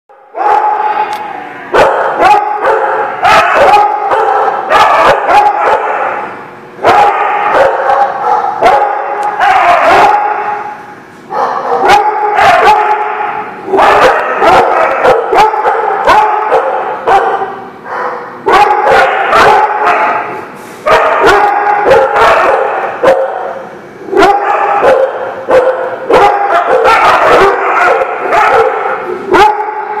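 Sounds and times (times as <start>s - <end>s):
dogs barking and yipping: 0.1s - 1.1s, 1.7s - 30.0s.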